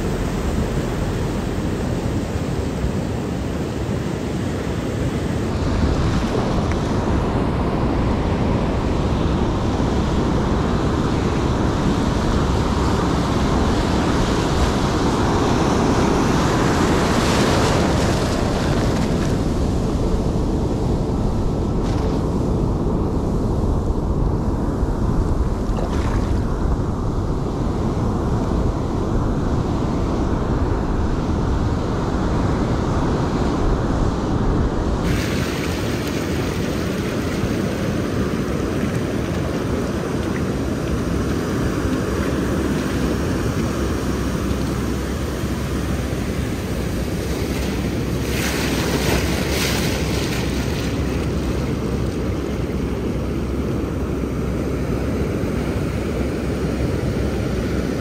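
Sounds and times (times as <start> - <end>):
ocean surf washing onto beach: 0.0 - 58.0
wind rumble on microphone: 0.0 - 58.0.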